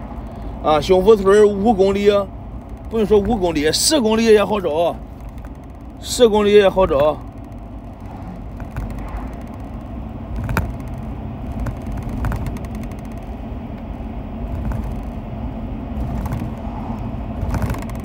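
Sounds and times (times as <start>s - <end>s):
car engine and road rumble: 0.0s - 18.0s
light clicks and knocks: 6.9s - 13.9s, 14.5s - 15.2s.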